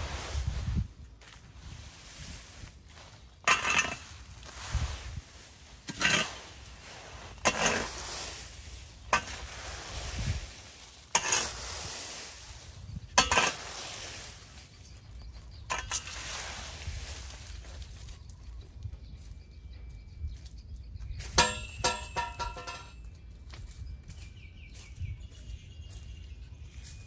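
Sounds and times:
rake scraping through dry leaves: 0.0 - 18.6.

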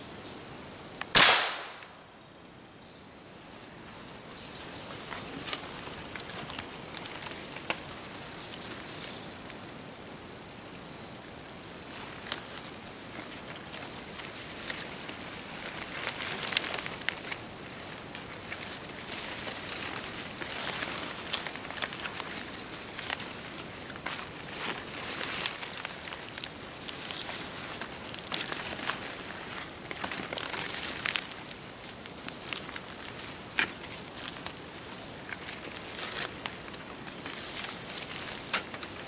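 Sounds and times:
twig snaps: 1.0 - 2.0, 20.4 - 34.6, 35.3 - 39.0
footsteps through leaf litter: 4.0 - 9.6, 11.5 - 39.0.

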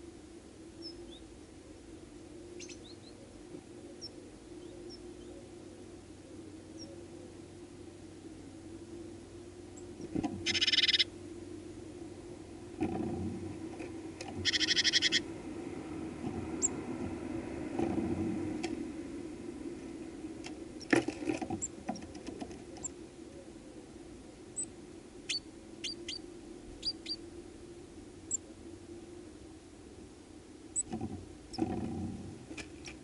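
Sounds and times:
steady low hum: 0.0 - 33.0
buzzy bird call: 10.4 - 11.1, 14.4 - 15.3.

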